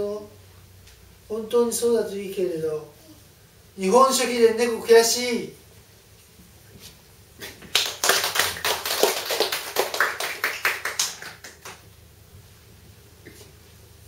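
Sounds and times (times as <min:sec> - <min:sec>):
audience applause: 0:07.7 - 0:11.8.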